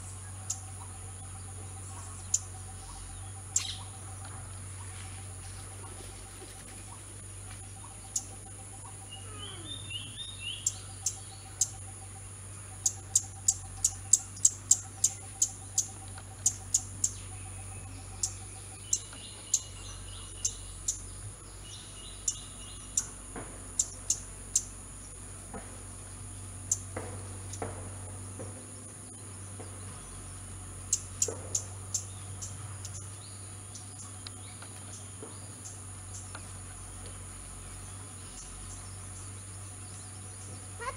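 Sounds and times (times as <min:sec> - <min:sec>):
low pulsing bird call: 0:00.0 - 0:25.2
bird trills: 0:00.1 - 0:04.3, 0:07.7 - 0:21.1.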